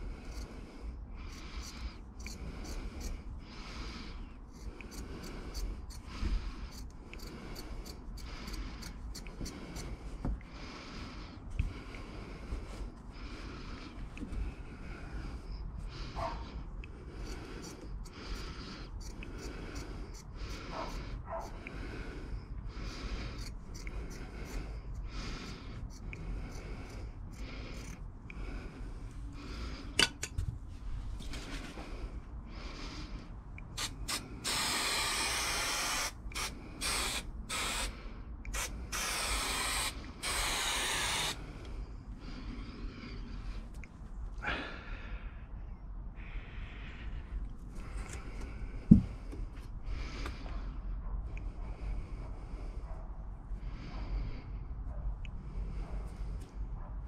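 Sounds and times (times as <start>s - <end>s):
scissors snipping carpet trim: 4.6s - 9.9s
loud hissing bursts: 33.7s - 41.4s.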